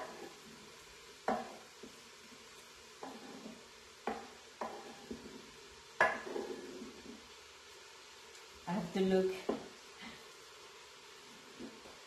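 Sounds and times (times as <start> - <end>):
wooden spoon knocking metal pot: 1.2 - 1.6, 4.0 - 4.8, 6.0 - 6.5
mushrooms scraped from cutting board: 3.0 - 3.6.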